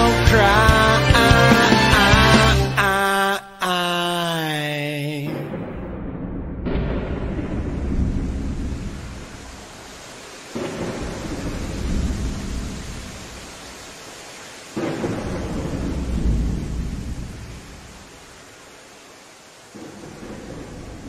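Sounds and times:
steady rain: 0.0s - 3.1s, 6.7s - 21.0s
thunder claps rolling: 5.3s - 13.7s, 14.7s - 18.1s, 19.7s - 21.0s.

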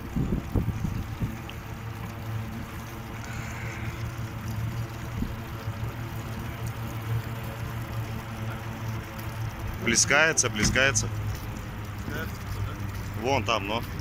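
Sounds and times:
boat motor running: 0.0s - 14.0s
water noise from hull: 0.0s - 14.0s.

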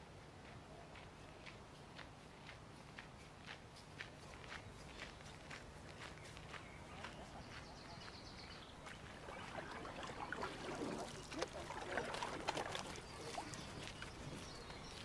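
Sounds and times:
outdoor background noise: 0.0s - 15.0s
footsteps on a path: 0.4s - 15.0s
birds chirping and calling: 6.0s - 15.0s.

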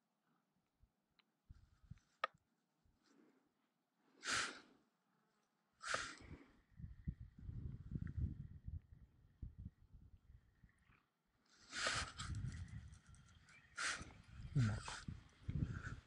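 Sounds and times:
breathy exhalations: 4.2s - 4.8s.

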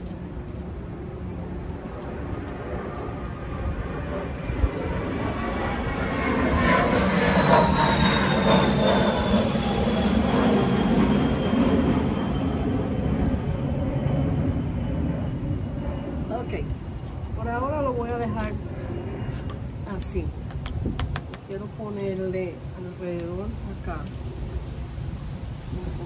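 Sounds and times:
high whine falling in pitch: 0.0s - 20.4s
airplane passing overhead: 0.0s - 26.0s.

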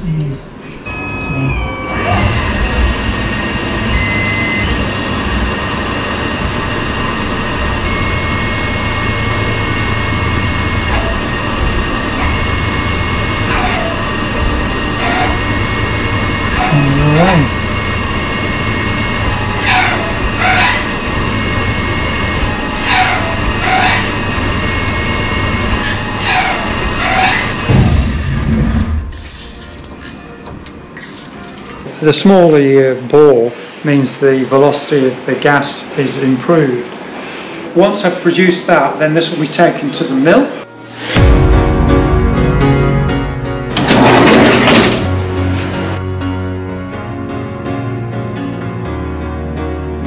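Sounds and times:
low hum: 0.0s - 32.0s
high whine: 0.0s - 46.8s
drill pecking sweep: 1.8s - 29.6s
lathe spindle and coolant spray: 4.8s - 29.5s.

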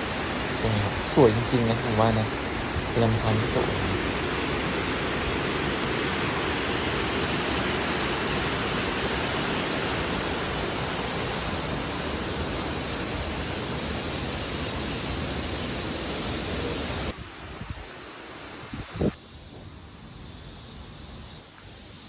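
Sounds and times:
water rushing over rocks: 0.0s - 17.1s.

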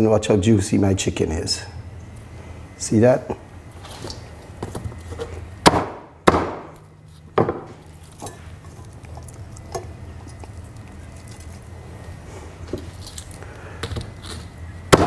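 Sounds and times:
cleaver chopping on wooden block: 5.6s - 6.8s.

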